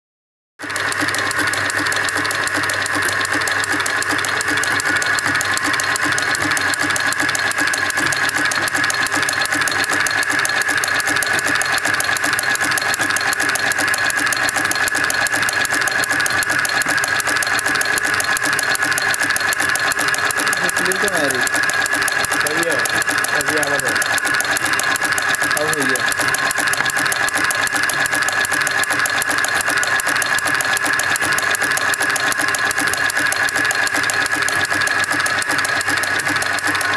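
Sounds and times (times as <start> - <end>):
rapid mechanical clatter: 0.6 - 36.9.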